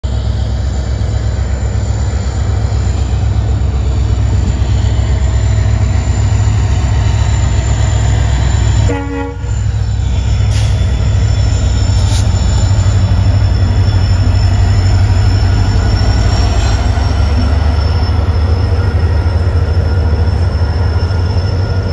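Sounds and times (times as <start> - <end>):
diesel locomotive engine rumbling: 0.0 - 21.9
brief tone: 4.8 - 21.9.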